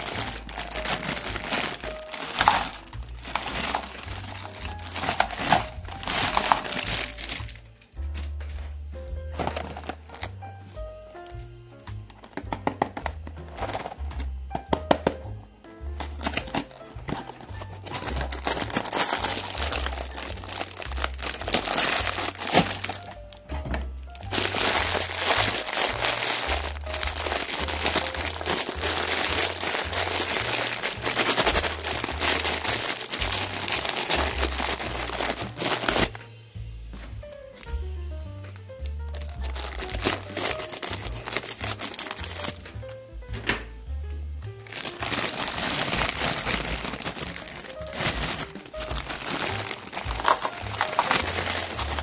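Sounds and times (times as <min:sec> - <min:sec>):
plastic candy bag crinkling: 0:00.0 - 0:15.3, 0:15.9 - 0:36.2, 0:38.8 - 0:42.8, 0:44.6 - 0:52.0
background music with bass beat: 0:31.7 - 0:41.3.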